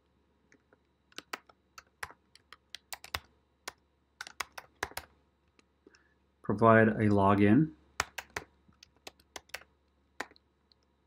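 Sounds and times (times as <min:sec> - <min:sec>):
keyboard typing clicks: 0:00.5 - 0:05.1, 0:07.4 - 0:10.8.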